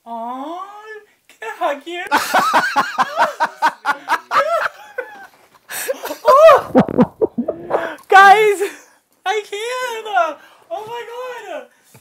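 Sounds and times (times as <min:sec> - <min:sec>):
person laughing: 0:06.1 - 0:08.0.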